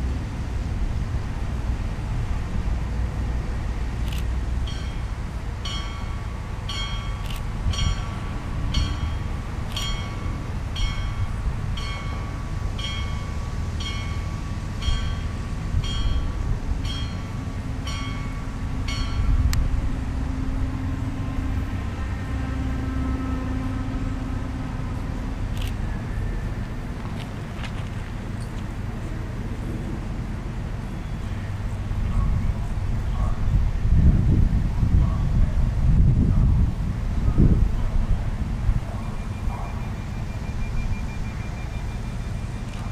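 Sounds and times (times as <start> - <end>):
diesel railcar running: 0.0 - 42.9
railcar hum: 0.0 - 42.9
warning bell dinging: 4.7 - 19.4.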